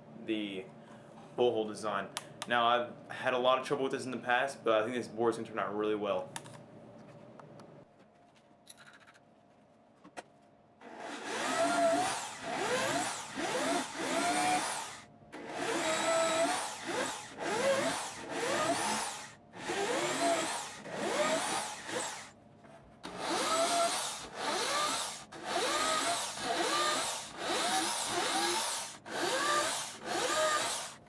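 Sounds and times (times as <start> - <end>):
electric drill boring into wood: 10.8 - 22.3, 23.0 - 31.0.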